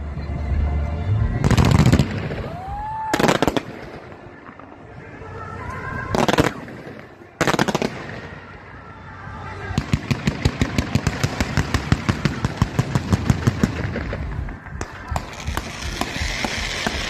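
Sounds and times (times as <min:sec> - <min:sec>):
fireworks crackling: 0:01.4 - 0:17.0
firework whistle: 0:14.8 - 0:17.0.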